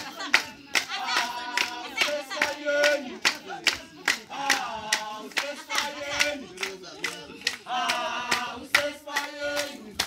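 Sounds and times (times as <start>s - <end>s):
group singing: 0.0s - 10.0s
hand-clapping: 0.0s - 10.0s.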